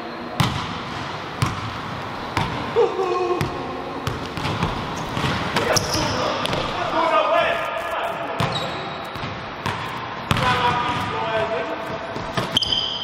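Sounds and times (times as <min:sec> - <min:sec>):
basketball bouncing on wooden floor: 0:00.4 - 0:01.8, 0:02.4 - 0:02.6, 0:03.4 - 0:06.7.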